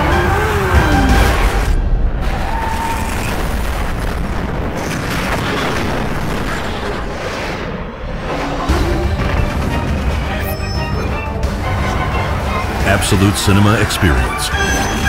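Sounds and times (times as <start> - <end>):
dramatic music: 0.0 - 3.8, 8.0 - 15.0.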